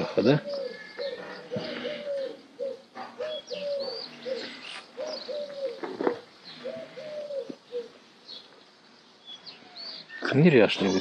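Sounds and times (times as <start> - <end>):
dove cooing: 0.0 - 8.0
small birds chirping: 0.0 - 11.0.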